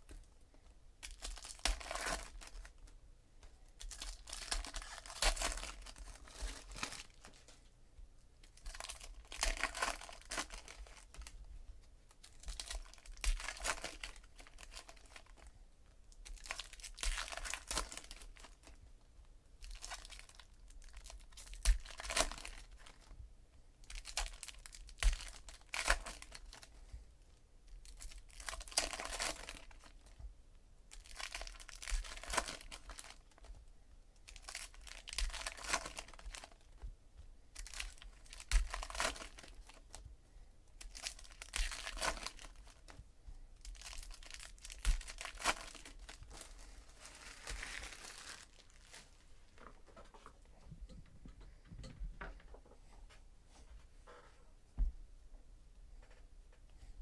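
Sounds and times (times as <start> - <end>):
card pack wrappers tearing: 3.8 - 7.3, 8.6 - 11.2, 27.9 - 29.9, 30.9 - 33.2, 34.3 - 36.6, 37.6 - 39.8, 40.8 - 42.8, 43.6 - 49.0.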